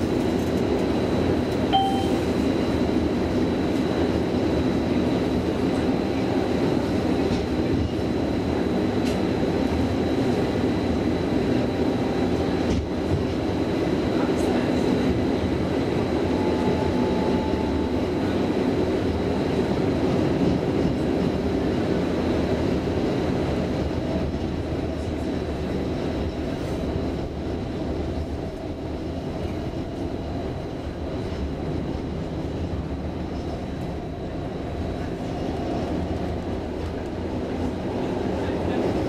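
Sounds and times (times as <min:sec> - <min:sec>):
tram running: 0:00.0 - 0:39.0.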